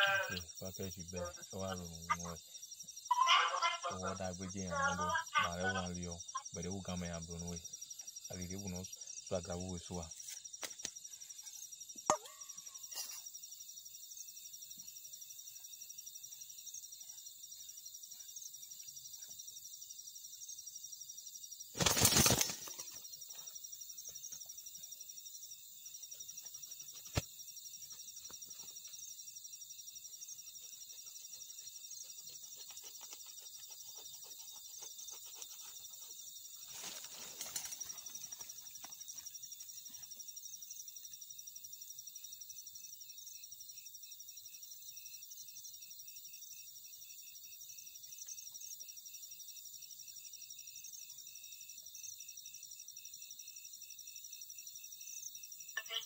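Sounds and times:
crickets chirping: 0.0s - 56.0s
chicken flapping wings: 21.8s - 23.0s.

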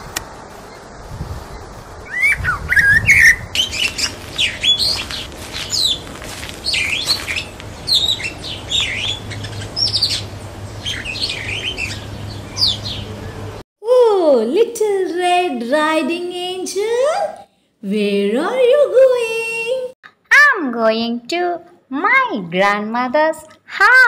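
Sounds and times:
bird chirps and whistled calls: 1.5s - 6.0s, 6.6s - 13.5s.

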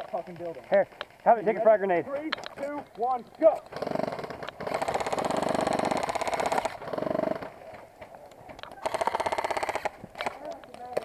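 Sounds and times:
airsoft rifle automatic fire: 3.7s - 7.5s, 8.8s - 10.4s.

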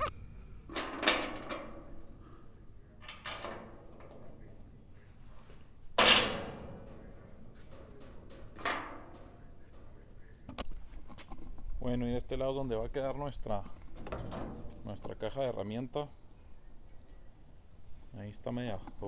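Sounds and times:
bangs: 6.0s - 10.6s.

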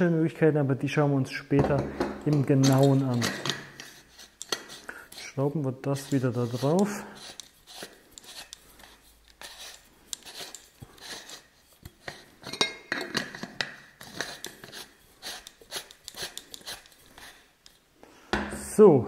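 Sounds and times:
spray gun parts clicking and knocking: 1.6s - 4.8s, 11.8s - 14.6s.

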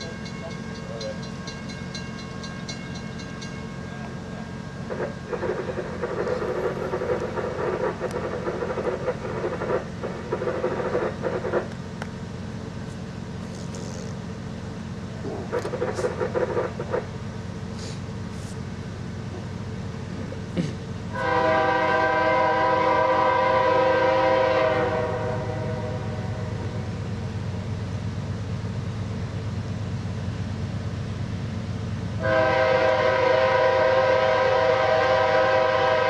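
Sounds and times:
diesel train rumbling: 0.0s - 36.0s
train horn blasts: 21.1s - 26.8s, 32.2s - 36.0s.

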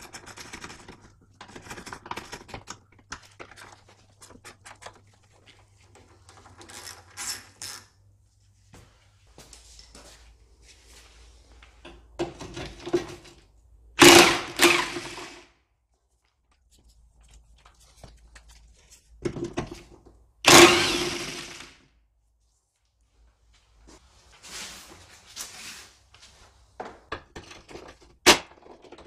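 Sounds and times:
power tool burst: 14.0s - 15.4s, 20.5s - 21.8s.

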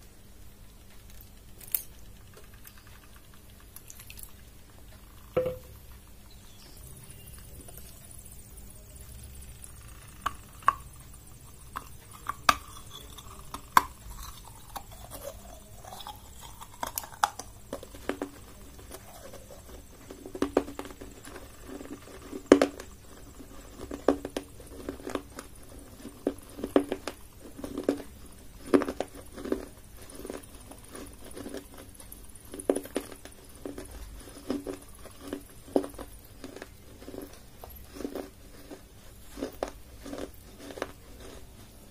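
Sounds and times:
fingertips tapping clay bowls: 5.4s - 6.0s.

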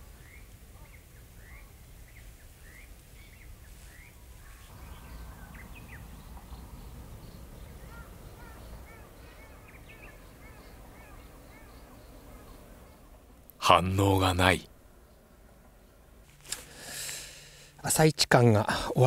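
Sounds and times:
low outdoor rumble: 0.0s - 19.0s
small bird chirping: 0.2s - 13.2s.

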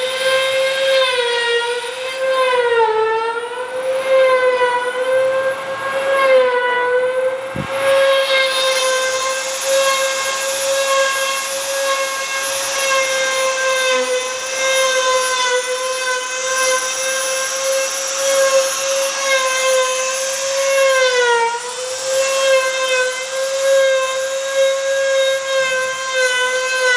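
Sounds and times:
router spindle whining: 0.0s - 26.9s
bit cutting wood hiss: 7.7s - 25.6s.

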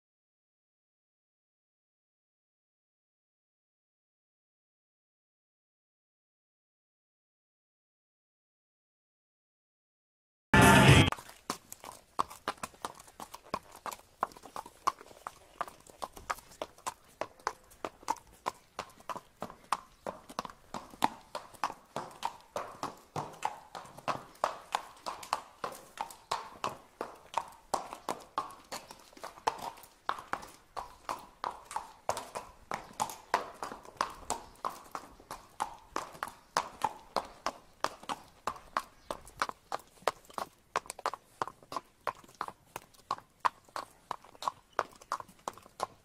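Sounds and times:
hooves clip-clopping on pavement: 10.7s - 46.0s.

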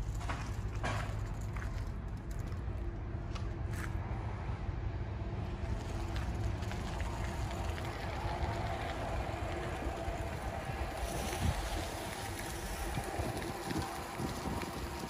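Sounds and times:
wind buffeting microphone: 5.4s - 15.0s.

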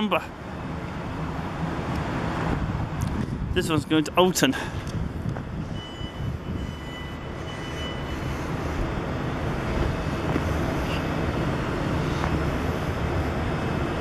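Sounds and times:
train low rumble: 0.0s - 14.0s
faint high whine: 5.7s - 8.8s.

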